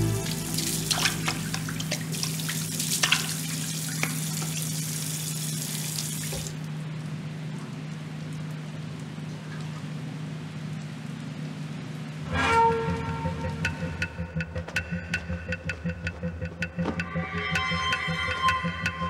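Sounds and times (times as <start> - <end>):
low steady hum: 0.0 - 4.5
tap water running into sink: 0.6 - 6.6.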